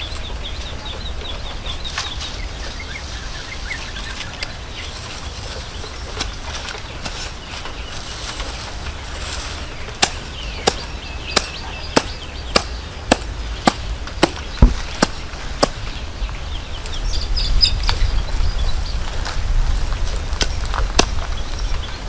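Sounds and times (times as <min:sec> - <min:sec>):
hard object knocking on brick: 0:14.2 - 0:15.1.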